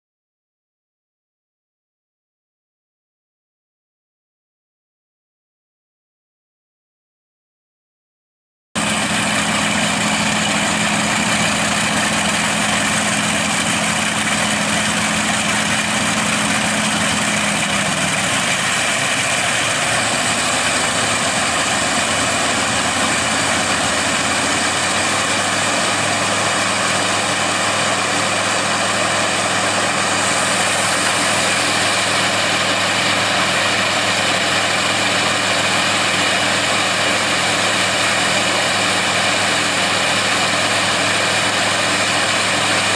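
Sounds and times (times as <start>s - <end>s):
radial aircraft engines running: 8.8s - 42.9s.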